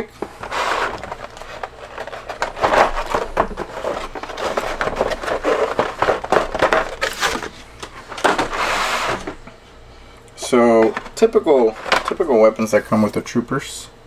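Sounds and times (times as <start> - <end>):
plastic blister crinkling: 0.1 - 9.4.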